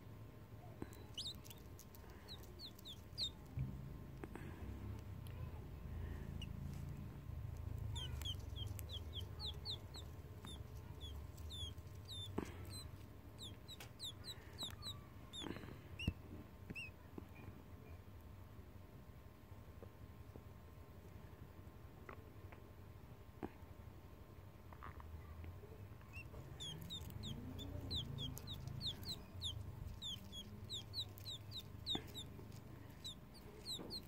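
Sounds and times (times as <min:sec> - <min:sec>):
chick peeping: 0:00.8 - 0:03.6, 0:07.6 - 0:17.0, 0:26.0 - 0:34.0.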